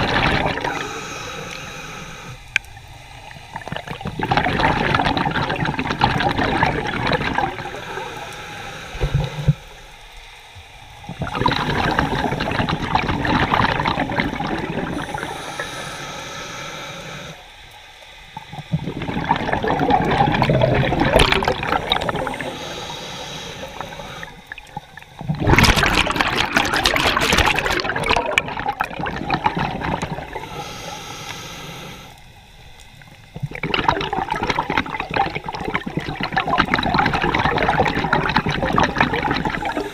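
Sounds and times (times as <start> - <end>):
exhaled bubbles rushing: 0.0 - 1.2, 3.3 - 9.8, 11.0 - 15.7, 18.4 - 30.7, 33.0 - 39.9
diver breathing through regulator: 0.0 - 2.6, 6.6 - 10.0, 11.1 - 17.6, 18.7 - 24.6, 29.4 - 32.4, 39.2 - 39.9.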